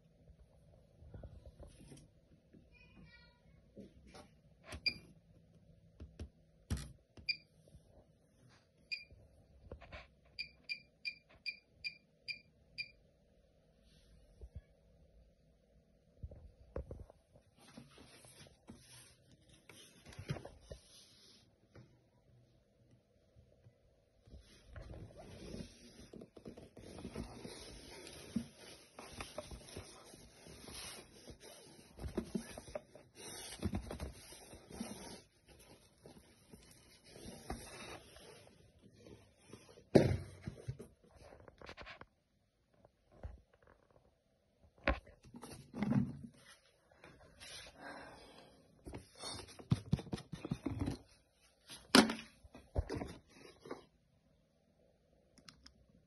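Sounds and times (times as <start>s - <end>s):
cardboard box rustling and scraping: 24.8s - 39.4s.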